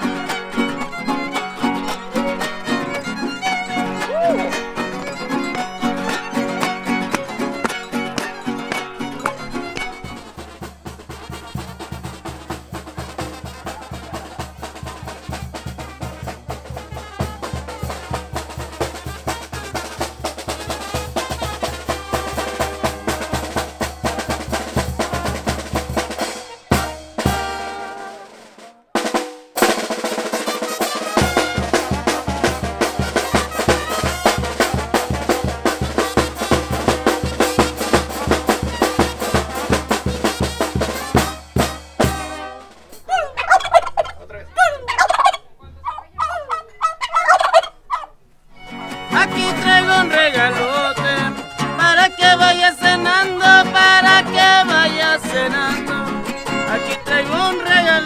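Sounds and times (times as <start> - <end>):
snare drum beat: 0.0 - 42.8
brass band playing: 0.0 - 44.1, 48.6 - 58.0
bass drum beat: 2.9 - 28.0, 29.0 - 42.5.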